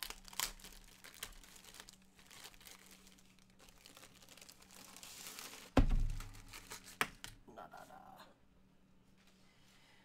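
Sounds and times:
plastic bag crinkling: 0.0 - 7.0
canvas roll thumping on wooden table: 5.8 - 6.3.

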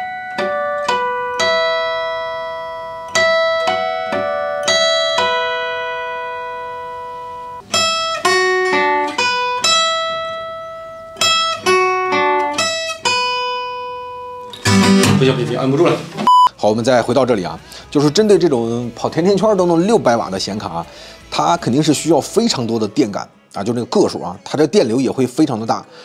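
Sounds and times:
acoustic guitar melody: 0.0 - 24.2.

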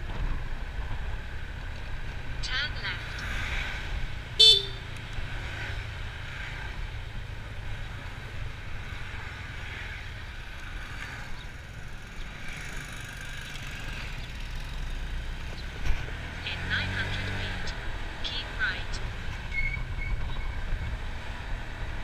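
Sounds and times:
road and wind noise: 0.0 - 22.0
motor scooter running: 4.4 - 18.2.

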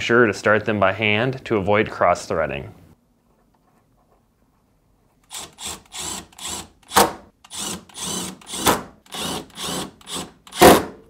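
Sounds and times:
cordless drill driving screw: 5.3 - 10.8.

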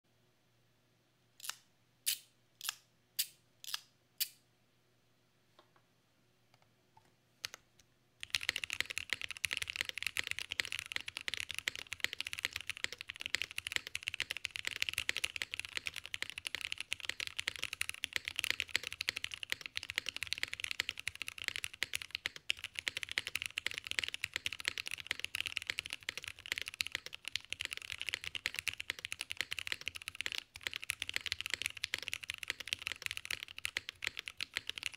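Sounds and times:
fast mechanical keyboard typing: 8.2 - 34.9.

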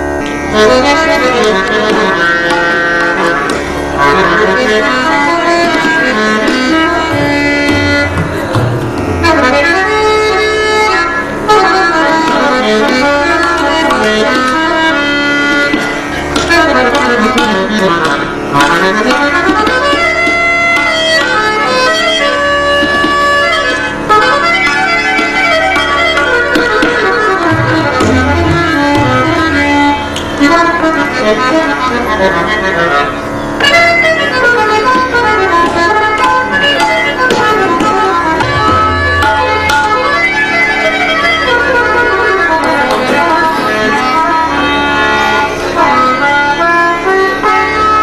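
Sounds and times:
harmonium melodic runs: 0.0 - 48.0
tabla drumming: 0.0 - 48.0.

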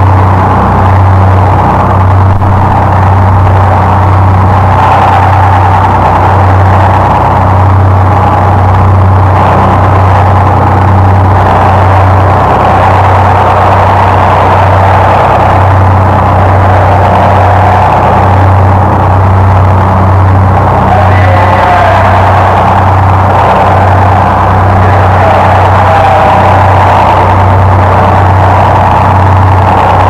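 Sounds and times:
harsh distorted noise drone: 0.0 - 30.0
heavy low hum: 0.0 - 30.0.

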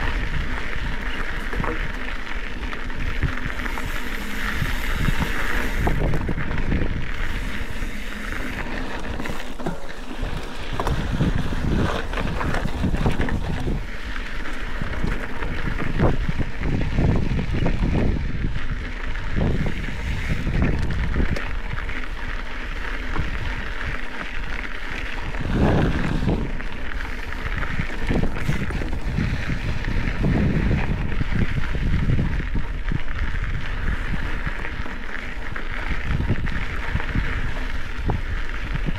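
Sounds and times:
wind buffeting microphone: 0.0 - 24.2, 24.8 - 38.9
bike thumps and rattles: 0.0 - 32.7
bike tyres crunching on gravel: 0.0 - 38.9.

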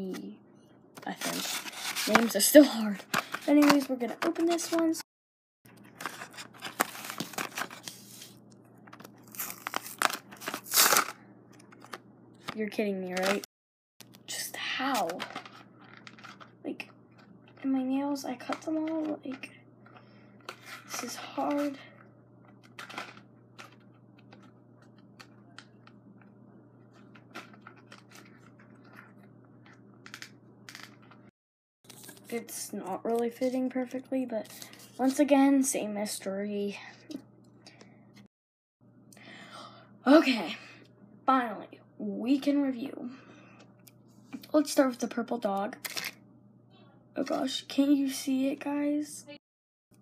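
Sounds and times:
packaging rustle: 5.8 - 12.0, 15.2 - 16.5
plastic blister pack crinkling: 5.8 - 12.5
low steady hum: 14.0 - 31.3.

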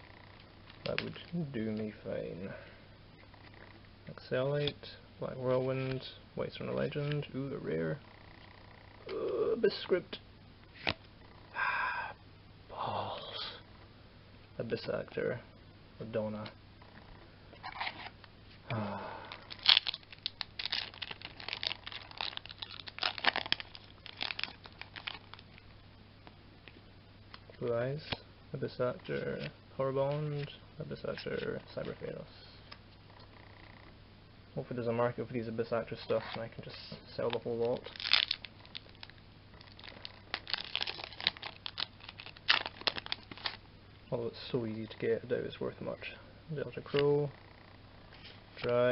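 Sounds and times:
foil wrapper crinkling and tearing: 19.3 - 25.6, 37.2 - 43.6.

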